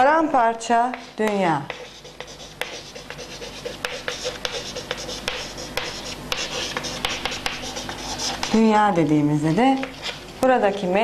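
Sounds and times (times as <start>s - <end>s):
chalk tapping on board: 0.9s - 8.6s
chalk scratching on chalkboard: 0.9s - 8.8s, 9.4s - 10.2s.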